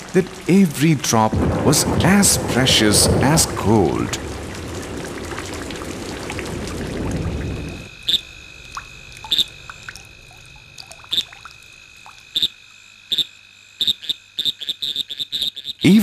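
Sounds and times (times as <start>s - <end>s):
heavy rain falling: 0.0s - 8.0s
frog calls: 7.2s - 16.0s.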